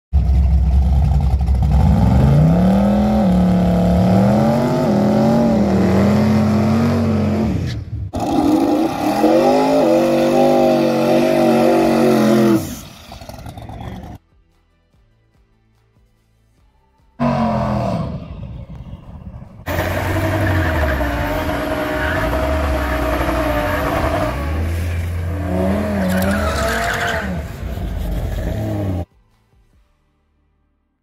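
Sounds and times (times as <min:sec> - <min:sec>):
racing car engines revving high: 0:00.7 - 0:14.2, 0:17.2 - 0:18.4, 0:19.6 - 0:29.1.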